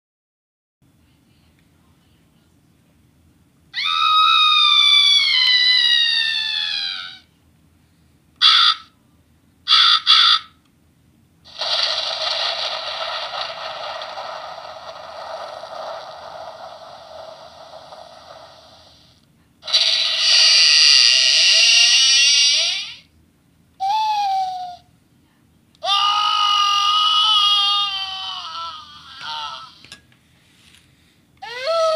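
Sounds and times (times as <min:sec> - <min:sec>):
toy playing spooky sound effects: 0:03.8 - 0:07.2, 0:08.4 - 0:08.9, 0:09.7 - 0:10.4, 0:15.3 - 0:23.0.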